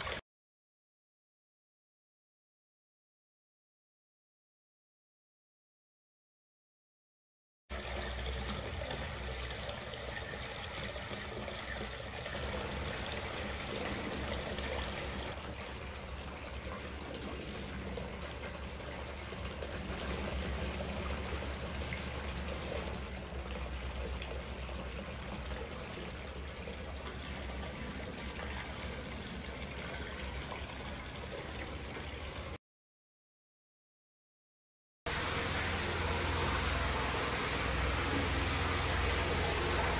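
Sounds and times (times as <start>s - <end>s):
running water rushing: 7.7s - 32.6s, 35.1s - 39.9s.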